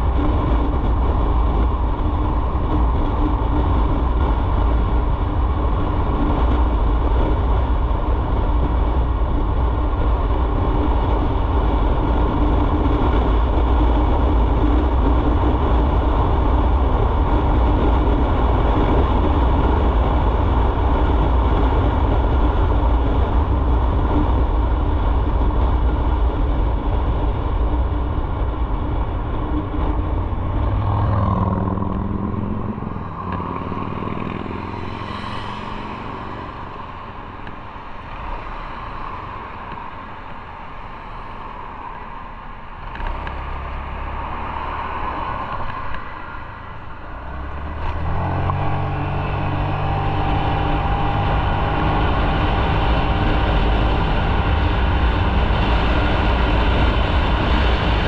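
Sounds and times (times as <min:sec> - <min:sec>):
heavy wind: 0:00.0 - 0:58.0
road rumble: 0:00.0 - 0:58.0
motorcycle engine cruising: 0:26.2 - 0:38.3, 0:46.4 - 0:58.0.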